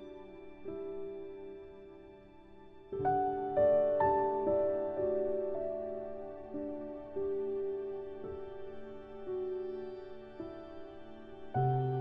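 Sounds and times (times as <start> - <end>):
slow instrumental music: 0.0 - 12.0.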